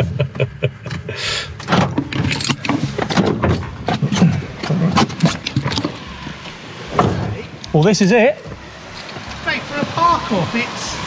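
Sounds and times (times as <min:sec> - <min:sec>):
clicks and knocks in a van cabin: 0:00.0 - 0:07.4.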